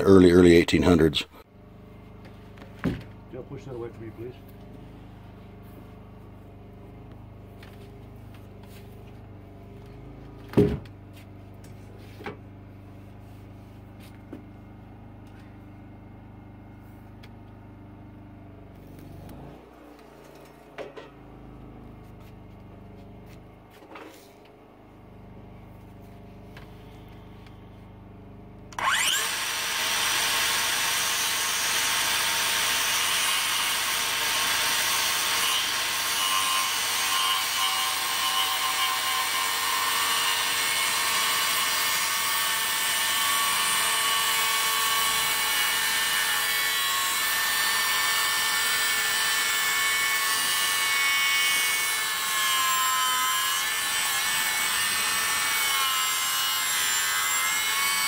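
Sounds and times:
circular saw cutting timber: 0:03.2 - 0:15.5, 0:28.7 - 0:58.0.

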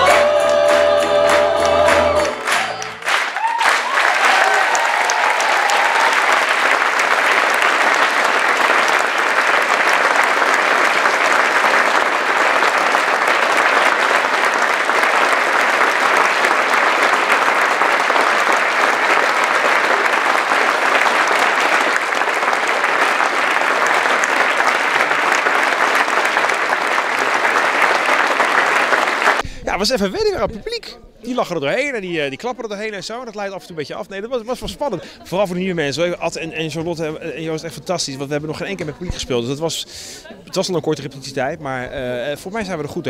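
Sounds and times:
audience applauding: 0:00.0 - 0:29.4.

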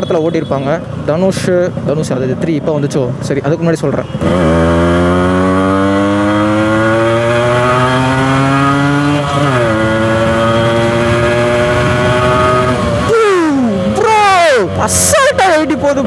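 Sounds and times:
two-stroke motorcycle engine accelerating: 0:04.2 - 0:16.0.

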